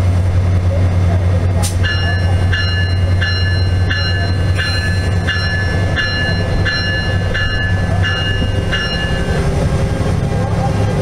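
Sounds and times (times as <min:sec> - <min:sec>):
idling locomotive hum: 0:00.0 - 0:11.0
locomotive bell ringing: 0:01.8 - 0:09.7.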